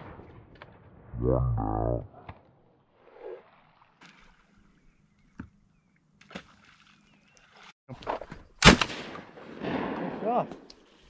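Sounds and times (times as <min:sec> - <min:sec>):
shotgun shot: 0:08.6 - 0:10.4.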